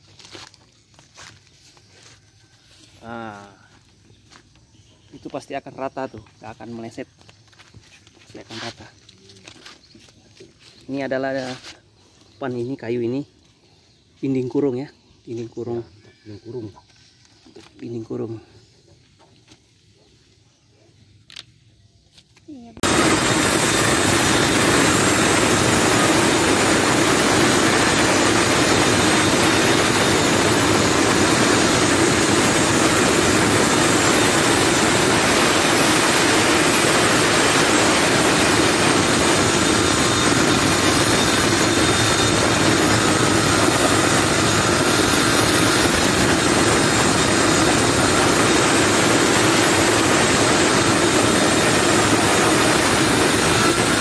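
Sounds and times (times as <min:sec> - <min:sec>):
circular saw cutting wood: 0:22.8 - 0:54.0.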